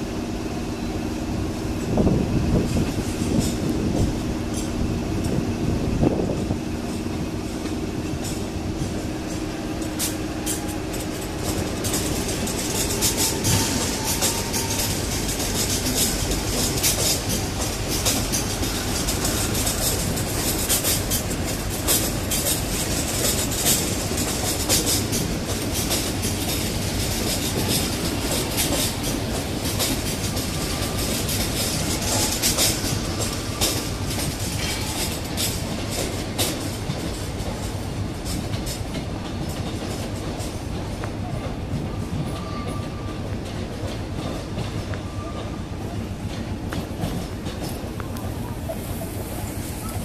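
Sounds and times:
train wheels rumbling on rails: 0:00.0 - 0:50.0
wheels clicking over rail joints: 0:01.8 - 0:50.0.

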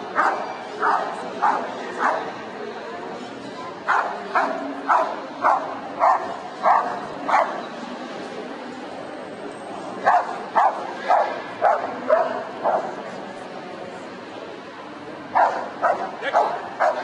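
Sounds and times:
dog barking: 0:00.2 - 0:02.3, 0:03.9 - 0:07.6, 0:10.1 - 0:12.9, 0:15.4 - 0:17.0.

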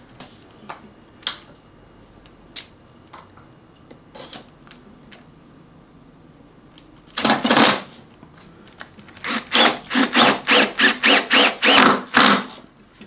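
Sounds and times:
cordless drill motor whine: 0:09.2 - 0:11.9.

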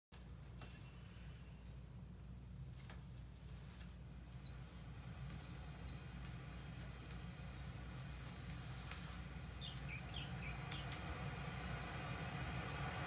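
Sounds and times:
low rumble: 0:03.5 - 0:13.0
bird chirps on a record: 0:03.9 - 0:13.0.

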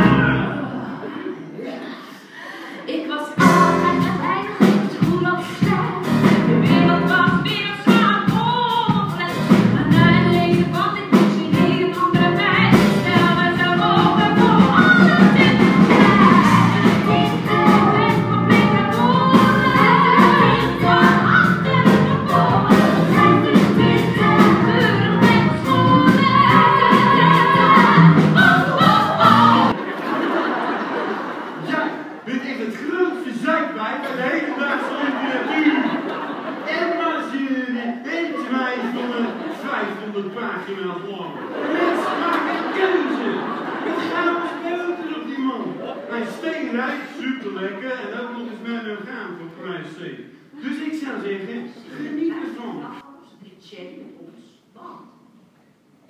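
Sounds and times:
woman belting a song: 0:03.2 - 0:29.8.

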